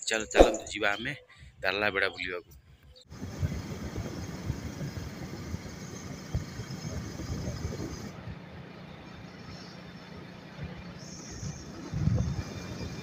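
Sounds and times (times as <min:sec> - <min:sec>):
engine and road noise rumble: 0:03.1 - 0:13.0.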